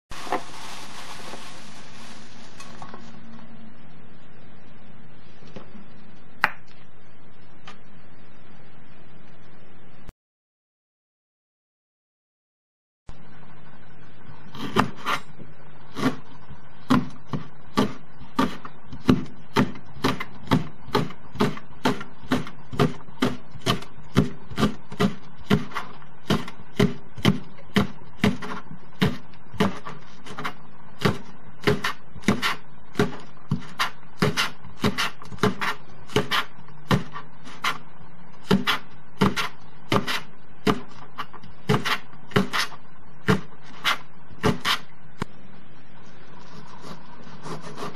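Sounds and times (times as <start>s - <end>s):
knife slicing leek on cutting board: 16.9s - 37.8s, 38.4s - 44.8s.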